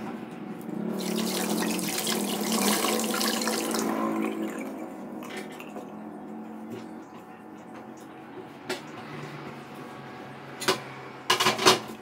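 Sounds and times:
tap running water into sink: 1.0 - 5.7.

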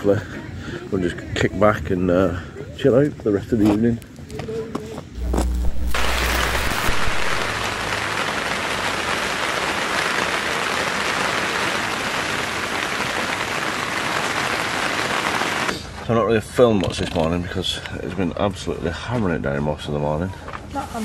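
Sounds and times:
heavy rain on tent: 5.2 - 16.0.

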